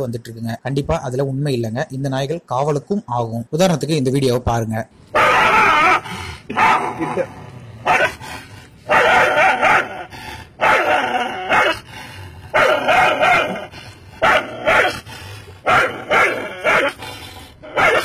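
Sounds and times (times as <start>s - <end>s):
dog barking and snarling: 5.1s - 18.0s.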